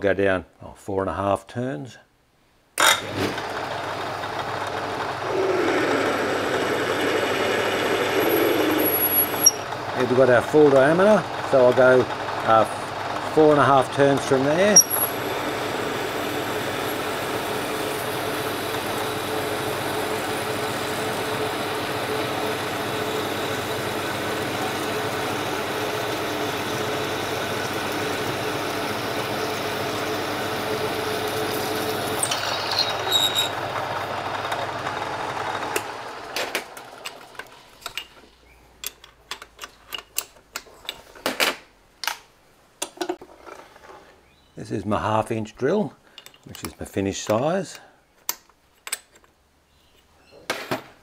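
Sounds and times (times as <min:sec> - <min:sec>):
metal lathe running: 0:03.0 - 0:37.5
drill boring into metal: 0:05.2 - 0:09.7, 0:13.3 - 0:33.7
high squeak: 0:08.2 - 0:09.7, 0:14.7 - 0:15.1, 0:32.2 - 0:33.6
metal clicks and knocks: 0:38.8 - 0:42.2.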